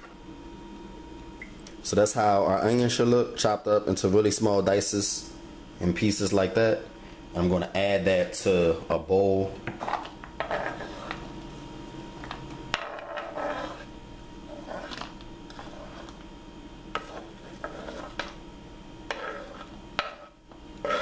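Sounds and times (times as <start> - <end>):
knife scraping wooden board: 9.8 - 11.2, 12.9 - 13.9, 14.5 - 16.2, 17.0 - 18.3, 19.1 - 21.0.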